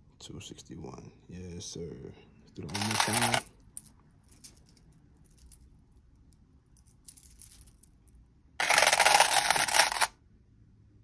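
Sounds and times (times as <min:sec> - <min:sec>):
metal chain links clattering: 0:02.7 - 0:03.5.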